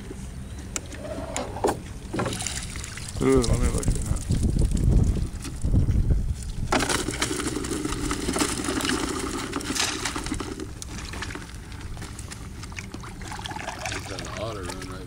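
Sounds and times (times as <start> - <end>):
crawfish shells rattling in basket: 6.7 - 12.2.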